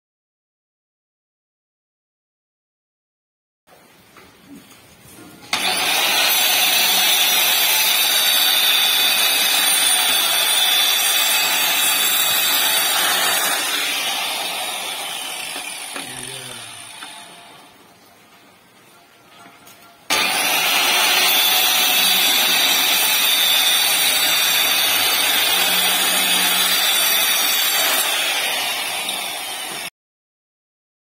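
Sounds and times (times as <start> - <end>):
electric tile cutter cutting tile: 5.5 - 17.8, 20.1 - 29.9.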